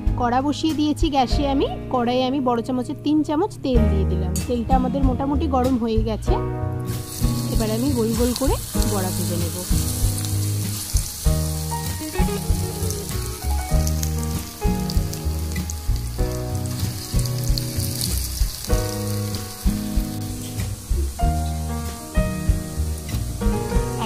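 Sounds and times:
background music with held notes: 0:00.0 - 0:24.0
hot oil sizzling: 0:06.7 - 0:24.0
sharp crackles of frying: 0:06.8 - 0:24.0.

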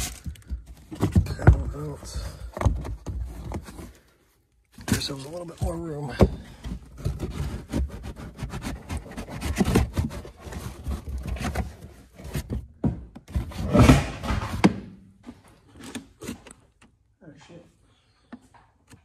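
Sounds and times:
trim rustling and rubbing: 0:06.8 - 0:12.6.

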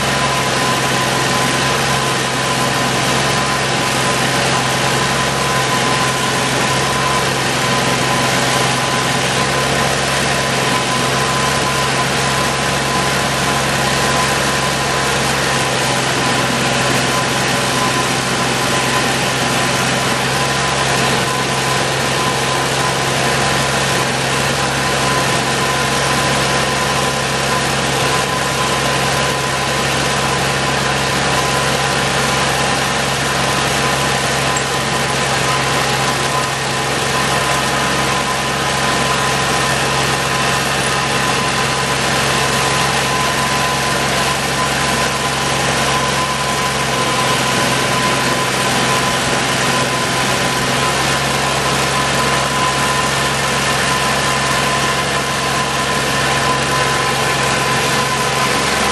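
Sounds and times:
trencher engine running: 0:00.0 - 0:58.9.

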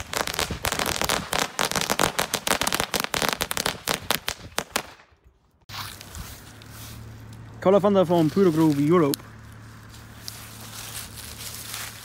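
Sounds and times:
firecrackers popping: 0:00.0 - 0:05.1.

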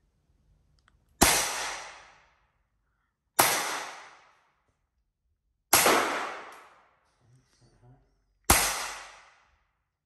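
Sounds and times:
air pistol shots: 0:01.2 - 0:02.4, 0:03.4 - 0:04.5, 0:05.7 - 0:07.0, 0:08.5 - 0:09.5.

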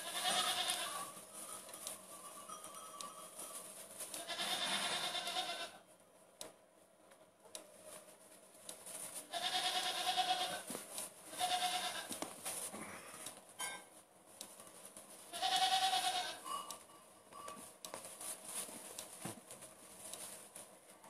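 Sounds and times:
goat kids bleating: 0:00.0 - 0:01.2, 0:04.1 - 0:05.8, 0:09.2 - 0:10.7, 0:11.3 - 0:12.2, 0:15.3 - 0:16.4.

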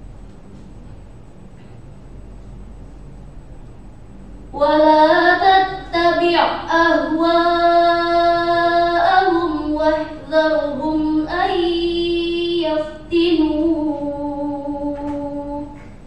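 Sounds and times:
girl reciting in long notes: 0:04.5 - 0:15.9.

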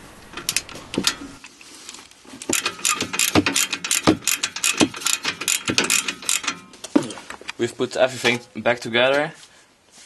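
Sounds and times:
socket ratchet clicking: 0:02.5 - 0:06.6.

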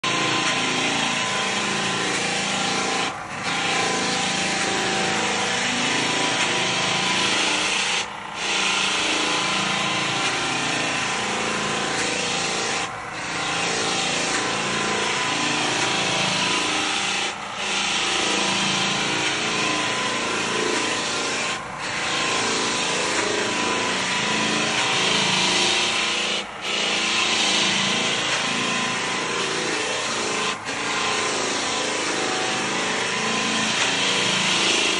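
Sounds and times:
power sander on wooden boards: 0:00.0 - 0:34.9.

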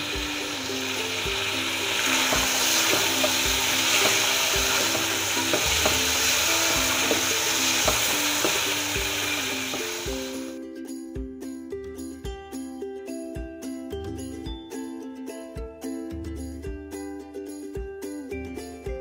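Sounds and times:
meat sizzling in hot oil: 0:00.0 - 0:10.6
simple background tune: 0:00.0 - 0:19.0.

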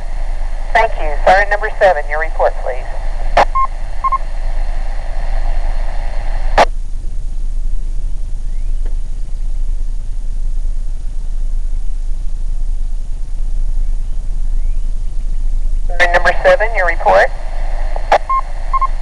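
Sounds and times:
radio carrier hiss: 0:00.0 - 0:06.7, 0:15.8 - 0:19.0
radio beep: 0:00.8 - 0:04.2, 0:15.9 - 0:17.3, 0:18.1 - 0:19.0.

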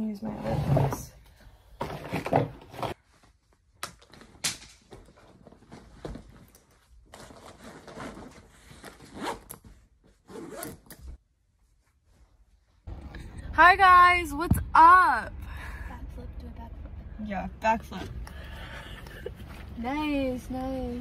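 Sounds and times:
zipper runs: 0:07.2 - 0:10.8.

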